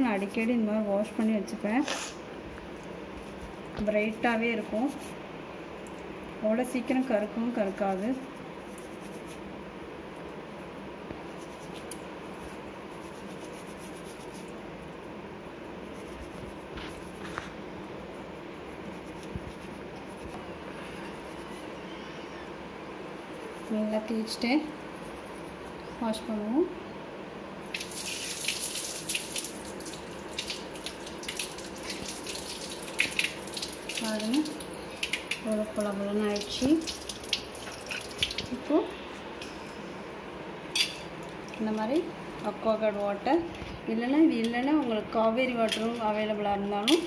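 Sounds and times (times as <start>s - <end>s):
toothbrush scrubbing metal: 7.6s - 9.5s, 11.3s - 14.6s, 15.7s - 17.4s, 18.6s - 21.7s, 23.3s - 25.8s.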